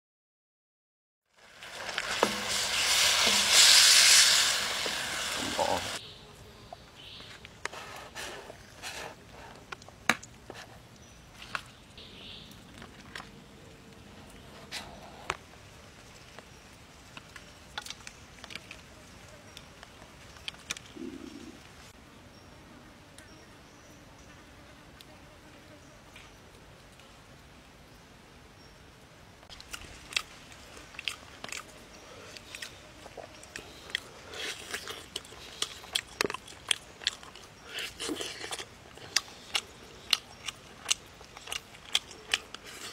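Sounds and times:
steady hiss: 1.3 - 9.6
person chewing meat: 29.5 - 42.9.

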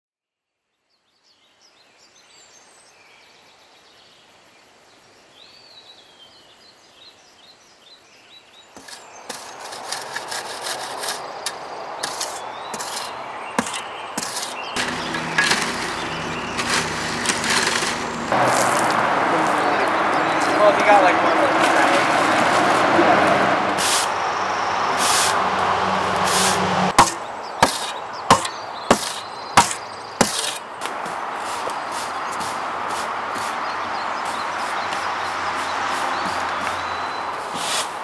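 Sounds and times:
birds chirping: 8.4 - 38.0
hand tools knocking and scraping: 8.8 - 18.9, 26.2 - 33.6.

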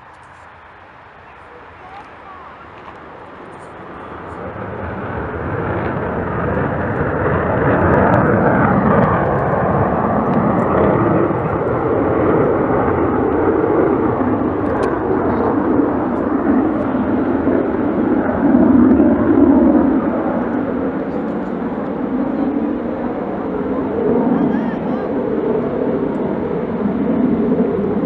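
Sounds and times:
aircraft engine flying past: 0.0 - 28.0.

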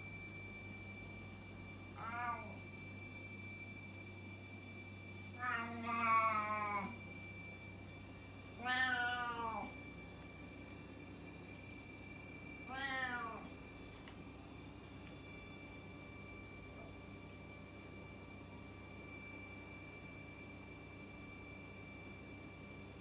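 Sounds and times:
cat meowing: 2.0 - 2.6, 5.4 - 7.0, 8.6 - 9.7, 12.7 - 13.5.

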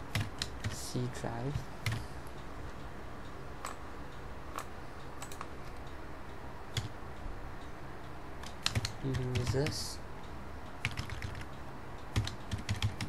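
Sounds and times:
low steady hum: 0.0 - 13.0
computer keyboard and mouse clicks: 0.1 - 0.8, 1.5 - 2.0, 4.5 - 5.9, 6.7 - 7.0, 8.4 - 9.8, 10.8 - 13.0.

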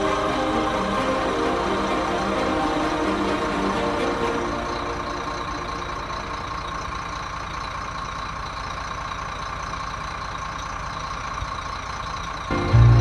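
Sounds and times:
higher hum: 0.0 - 7.8, 12.5 - 13.0
diesel truck engine idling: 0.0 - 13.0.

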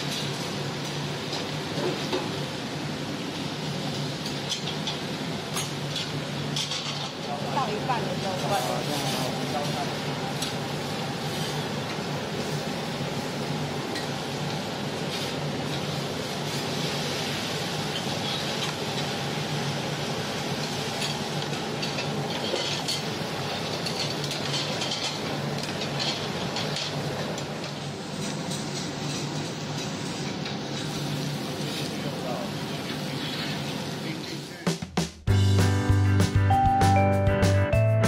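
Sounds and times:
metal utensils clinking on plates: 4.3 - 7.2, 21.0 - 27.0
hiss: 12.3 - 21.6.

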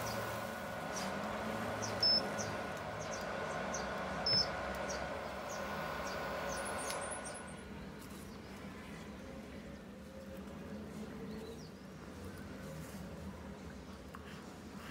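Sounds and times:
short high beeps: 2.0 - 2.3.

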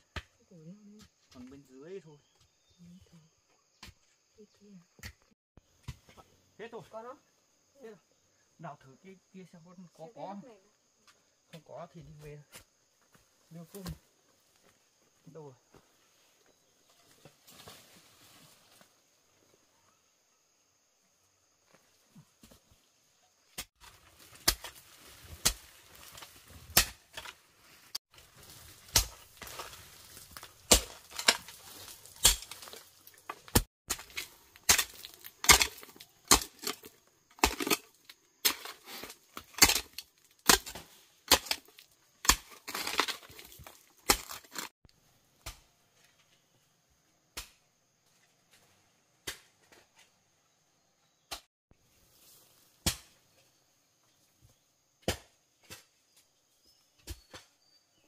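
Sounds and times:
hoe chopping into earth: 23.6 - 27.4, 28.7 - 44.7, 52.8 - 53.2, 55.0 - 55.9
soil scraping and crumbling: 23.6 - 44.8.

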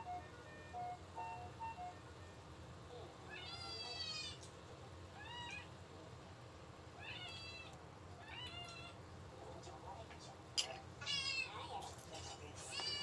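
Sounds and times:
cat meowing: 3.3 - 4.4, 5.1 - 5.8, 7.0 - 9.0, 11.0 - 11.7, 12.7 - 13.0.

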